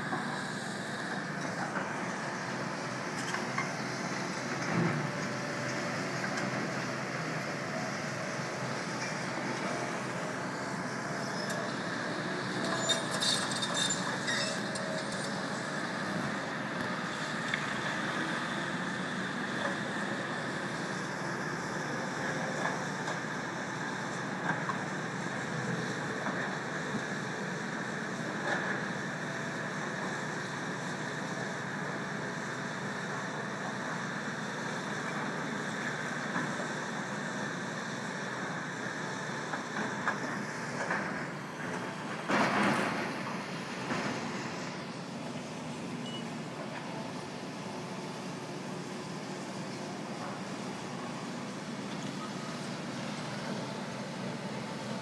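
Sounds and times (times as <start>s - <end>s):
excavator diesel engines: 0.0s - 55.0s
road traffic: 0.0s - 55.0s.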